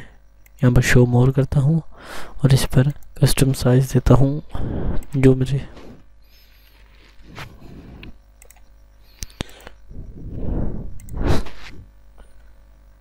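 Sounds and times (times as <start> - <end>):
computer keyboard clicks: 8.4 - 9.8
soft rushes of noise: 9.9 - 11.9.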